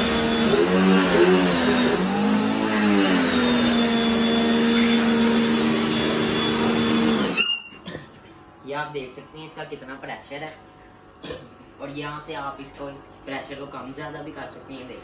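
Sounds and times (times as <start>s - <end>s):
pressure washer motor whine: 0.0s - 7.7s.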